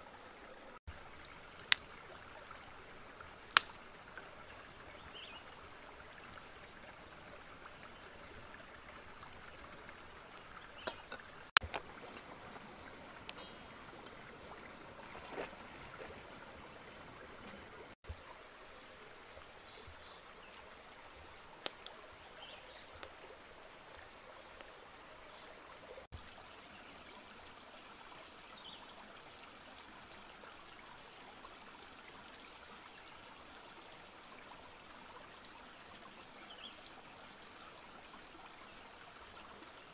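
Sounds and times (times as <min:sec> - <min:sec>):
stream flowing over rocks: 0:00.0 - 0:39.9
high insect drone: 0:11.6 - 0:26.1.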